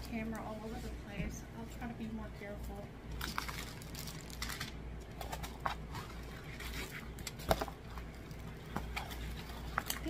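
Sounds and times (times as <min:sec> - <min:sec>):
plastic sleeve crinkling: 0:03.1 - 0:10.0.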